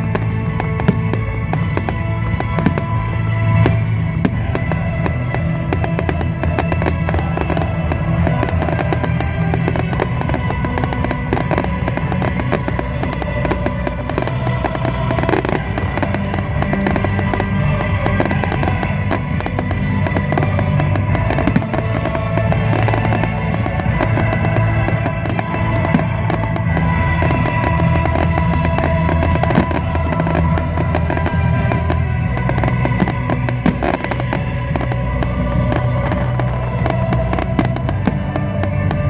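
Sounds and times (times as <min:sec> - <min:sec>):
fireworks bangs and crackles: 0:00.0 - 0:39.0
loud music: 0:00.0 - 0:39.0.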